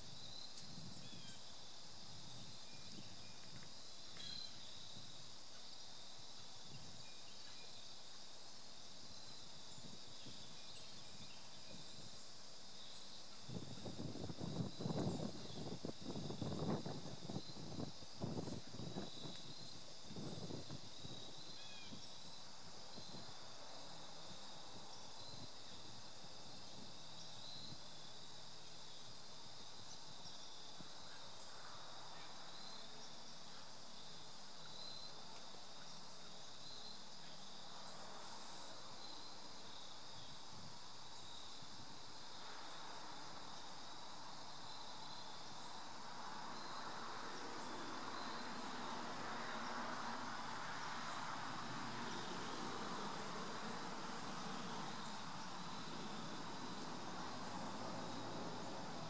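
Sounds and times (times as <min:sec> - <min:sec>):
crickets trilling: 0:00.0 - 0:59.0
faint rushing noise: 0:41.5 - 0:59.0.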